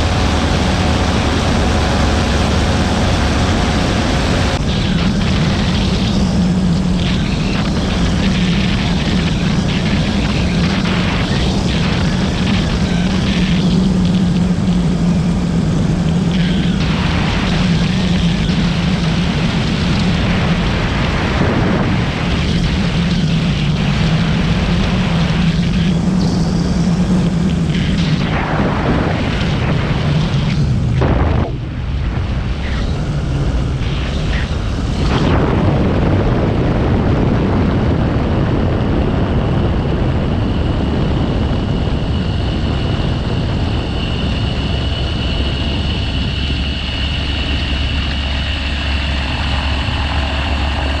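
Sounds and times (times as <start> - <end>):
aircraft engine and propeller: 0.0 - 51.0
wind buffeting microphone: 0.0 - 51.0.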